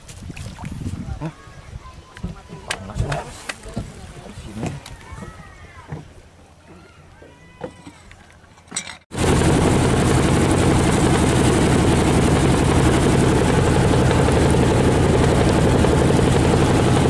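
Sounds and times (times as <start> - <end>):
water churning in wake: 0.0 - 17.0
boat engine running: 3.7 - 17.0.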